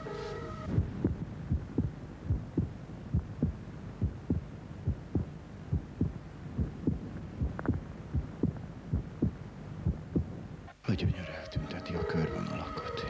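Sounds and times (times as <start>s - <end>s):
low hum: 0.0s - 10.8s
heartbeat thumps: 0.7s - 10.7s.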